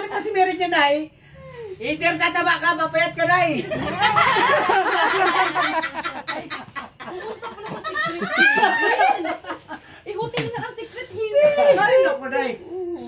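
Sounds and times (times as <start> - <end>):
women laughing loudly: 3.6 - 9.8.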